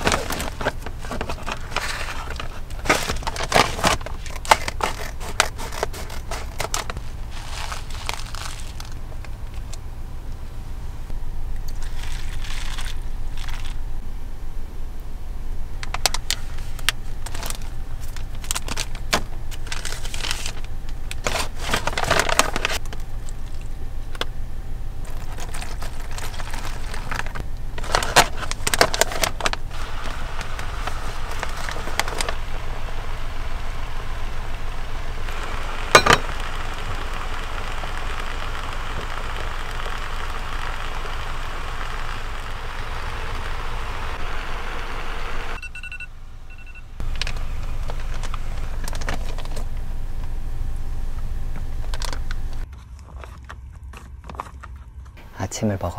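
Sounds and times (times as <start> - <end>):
plastic foil pouches crinkling: 0.0 - 9.8, 11.7 - 13.8, 15.9 - 24.2, 25.0 - 43.2, 47.0 - 49.7
crackling: 0.0 - 14.0, 15.0 - 55.3
low rumble: 6.1 - 52.6
steady hiss: 29.4 - 45.6.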